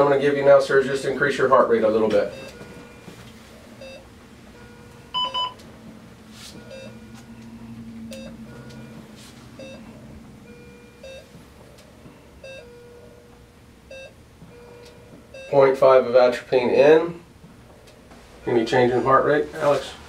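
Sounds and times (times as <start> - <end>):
heart monitor beeping: 1.5 - 15.8
louder higher beeps: 5.1 - 5.6, 9.6 - 9.9.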